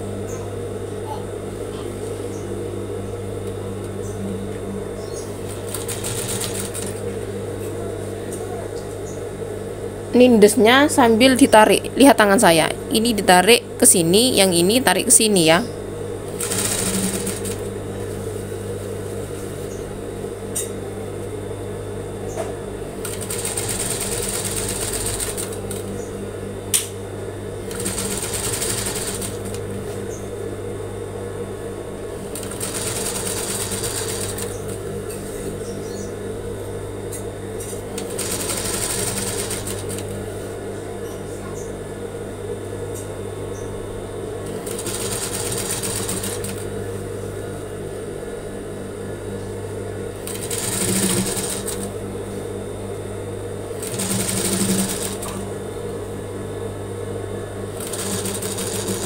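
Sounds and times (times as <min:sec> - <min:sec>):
sewing machine humming: 0:04.8 - 0:07.5, 0:16.2 - 0:18.4, 0:22.8 - 0:26.1, 0:27.5 - 0:30.1, 0:32.1 - 0:34.9, 0:37.7 - 0:40.2, 0:44.4 - 0:46.7, 0:50.2 - 0:52.2, 0:53.6 - 0:55.9, 0:57.7 - 0:59.0.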